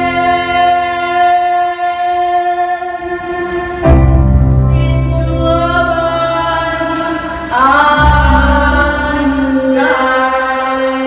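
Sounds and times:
backing track music: 0.0s - 11.0s
women singing together: 4.8s - 11.0s.

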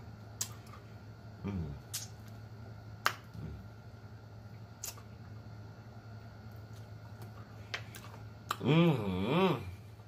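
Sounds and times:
mouth-smacking clicks: 1.9s - 2.2s, 4.8s - 5.1s.

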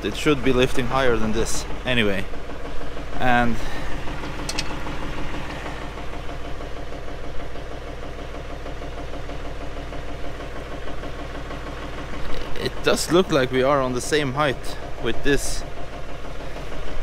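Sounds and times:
tractor diesel engine idling: 0.0s - 17.0s.

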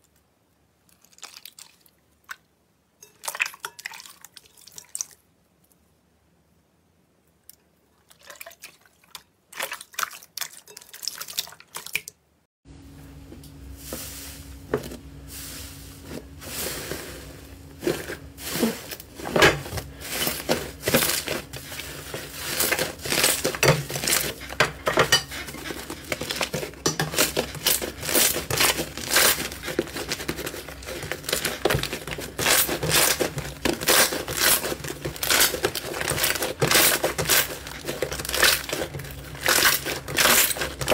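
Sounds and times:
faint steady hum: 12.2s - 40.9s.

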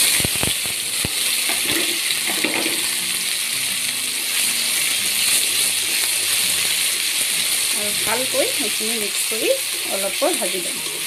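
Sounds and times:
paste sizzling in hot oil: 0.0s - 11.0s
spoon knocking on pan: 1.5s - 2.9s.

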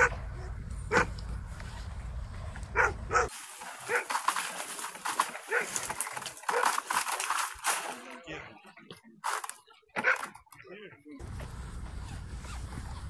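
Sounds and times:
dog yelping: 0.0s - 1.1s, 2.7s - 4.1s.

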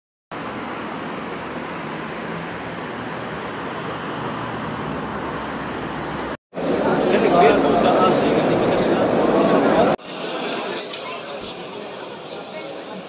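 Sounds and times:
road traffic rush: 0.3s - 13.0s.

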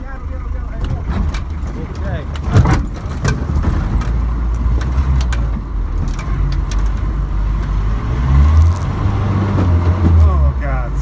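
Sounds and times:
engine running at low revs: 0.0s - 11.0s
light clicks and rattles: 0.8s - 7.8s.

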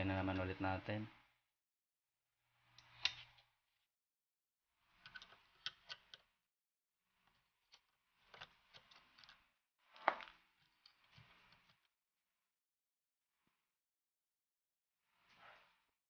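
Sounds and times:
screwdriver clicks and scrapes: 5.0s - 6.3s, 7.3s - 9.4s.

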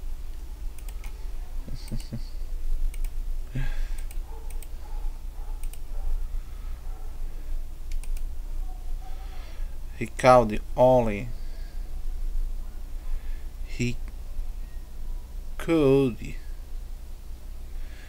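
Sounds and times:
low electrical hum: 0.0s - 18.0s
mouse and keyboard clicks: 5.6s - 5.9s, 7.9s - 8.3s.

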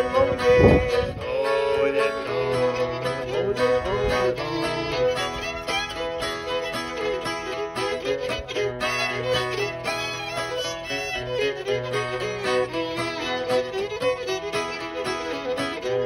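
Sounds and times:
bowed fiddle melody: 0.0s - 16.0s
strummed acoustic guitar: 0.0s - 16.0s.

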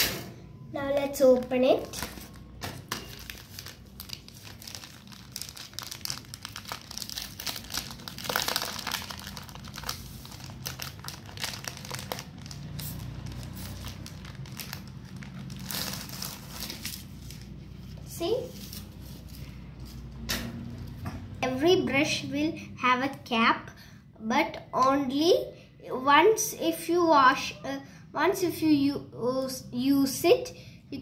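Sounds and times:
plastic packaging crinkling: 1.0s - 17.6s.

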